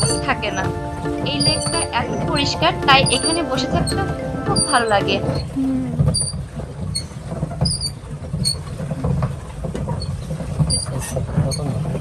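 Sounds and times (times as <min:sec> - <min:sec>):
pedal mechanism squeaking: 0:06.1 - 0:08.6.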